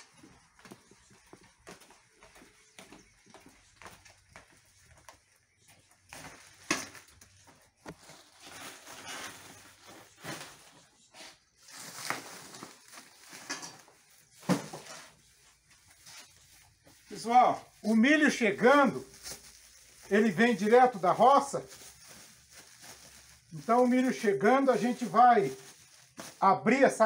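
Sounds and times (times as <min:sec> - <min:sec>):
plastic sacks rustling: 0:05.8 - 0:27.0.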